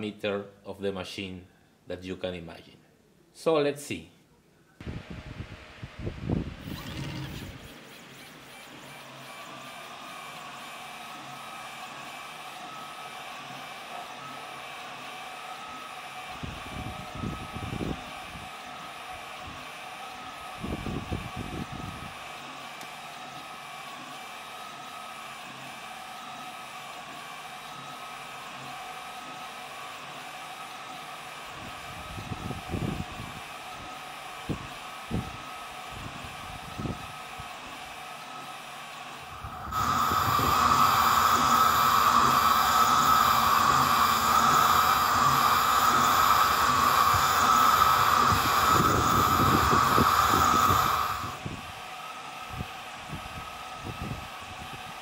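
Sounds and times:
laser engraver fan whirring: 4.8s - 55.0s
held tones: 39.3s - 51.3s.

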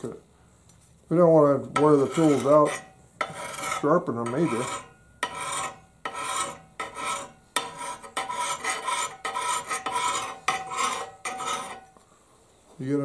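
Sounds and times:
hand file rasping on axe blade: 1.8s - 11.8s.

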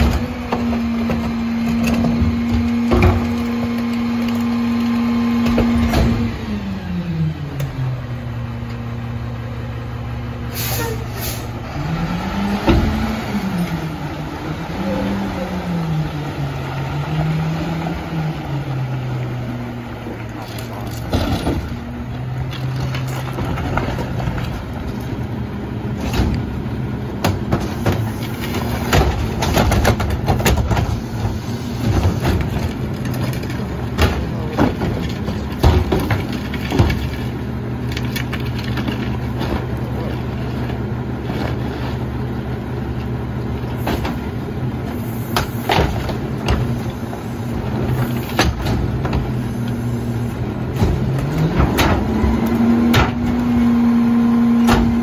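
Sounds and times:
garbage truck engine idling: 12.6s - 55.0s
carts rolling over gravel: 19.9s - 53.8s
carts clattering against hopper: 25.9s - 42.3s, 43.0s - 53.7s, 54.5s - 55.0s.

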